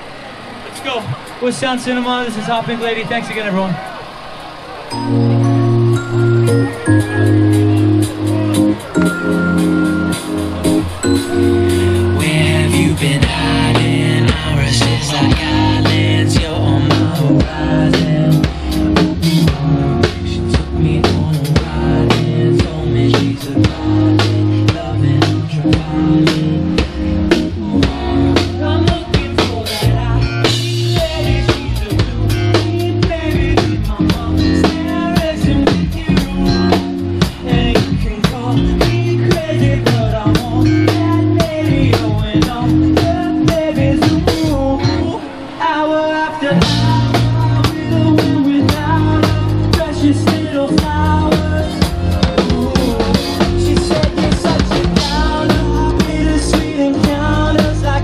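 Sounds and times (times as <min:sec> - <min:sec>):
guitar: 0:03.7 - 0:58.0
wavering melodic line: 0:04.9 - 0:33.4
bass: 0:04.9 - 0:45.6, 0:46.4 - 0:58.0
drum kit beat: 0:05.0 - 0:45.0, 0:46.5 - 0:58.0.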